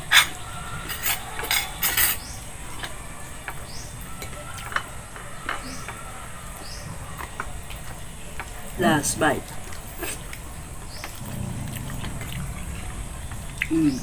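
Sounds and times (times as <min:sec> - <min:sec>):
plates and utensils clinking: 0:00.0 - 0:06.1.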